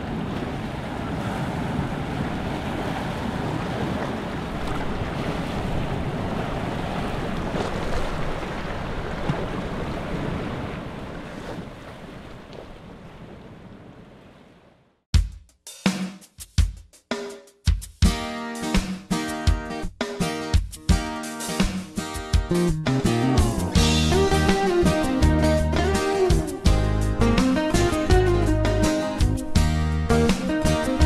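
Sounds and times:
ocean surf on rocks: 0.0 - 14.8.

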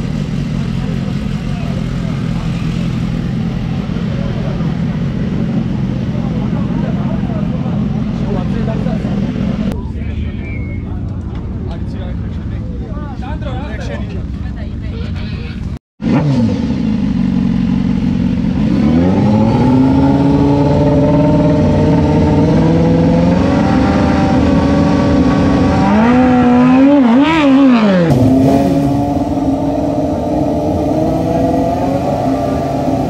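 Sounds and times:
motorcycle idling: 0.0 - 15.8, 16.7 - 18.8
motorcycle engine revving: 16.0 - 33.0.

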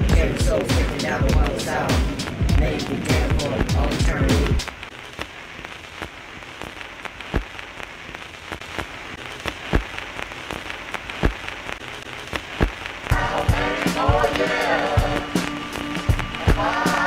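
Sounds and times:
vinyl clicks and pops: 0.0 - 17.0
vinyl crackle and hiss: 0.0 - 17.0.

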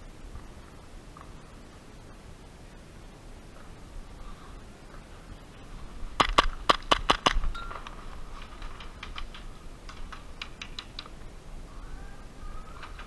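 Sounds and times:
airsoft gun shots: 6.2 - 7.5.

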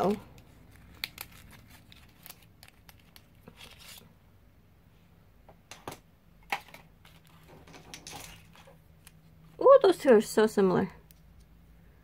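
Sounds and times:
packaging rustling and clicking: 0.0 - 4.0.

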